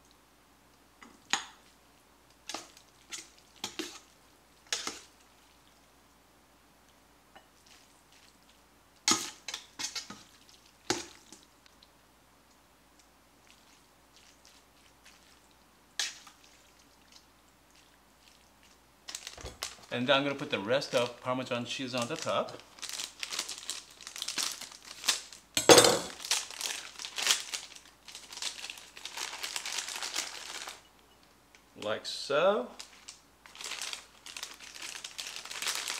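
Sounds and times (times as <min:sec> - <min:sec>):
wet slops of food: 0:13.4 - 0:18.8
plastic bag crinkling: 0:19.1 - 0:30.8, 0:32.8 - 0:35.9.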